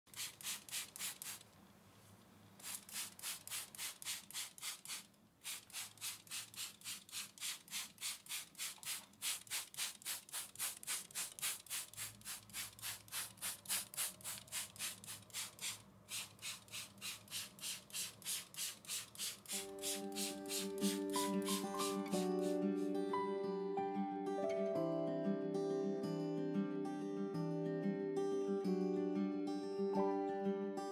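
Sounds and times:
spray bottle spritzing: 0.1s - 1.5s, 2.6s - 23.0s.

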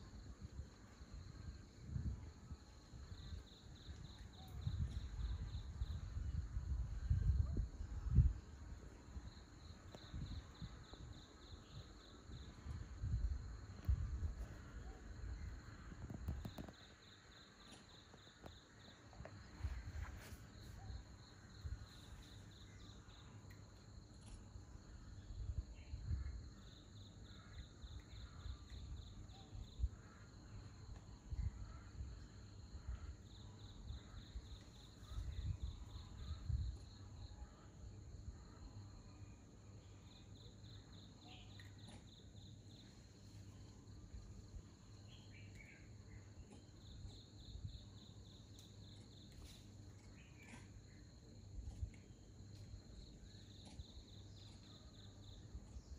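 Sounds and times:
insect chirping in pulsed trills: 0.0s - 55.9s
low rumbles on microphone: 12.5s - 16.7s.

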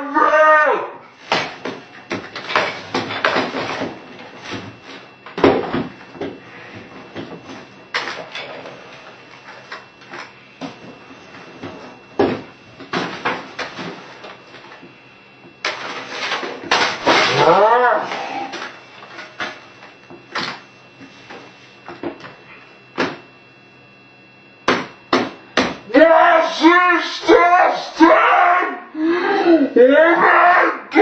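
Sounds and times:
hammering on keyboard and desk: 24.6s - 25.8s.

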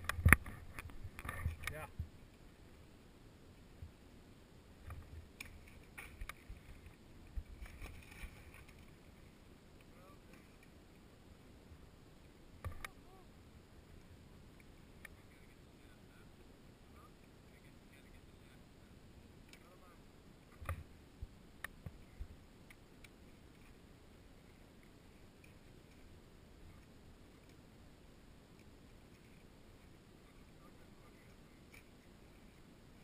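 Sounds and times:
low wind rumble on microphone: 0.0s - 2.8s.

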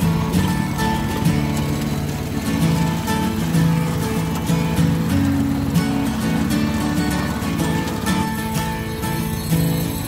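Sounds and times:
acoustic guitar music: 0.0s - 10.0s.

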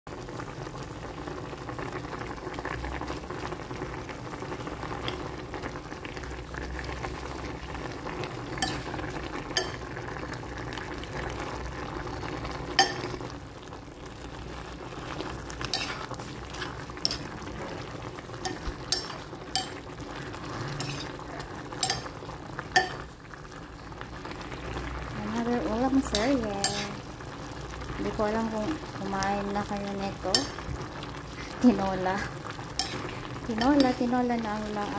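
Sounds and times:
soup bubbling: 0.1s - 34.9s
metal spatula clicking on glass: 18.5s - 19.8s, 21.8s - 22.1s.

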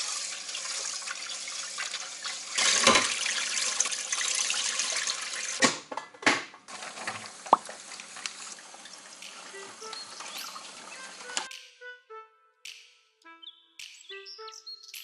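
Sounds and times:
tap water running into pot: 0.0s - 5.7s, 6.7s - 11.4s.

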